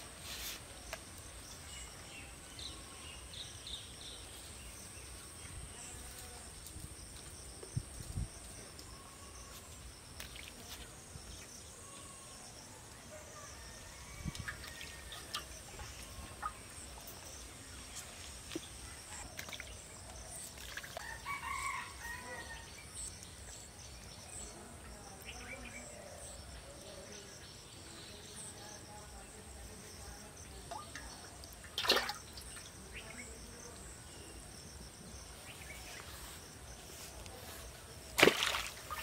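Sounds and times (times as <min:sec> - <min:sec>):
rooster crowing: 0:21.0 - 0:22.7.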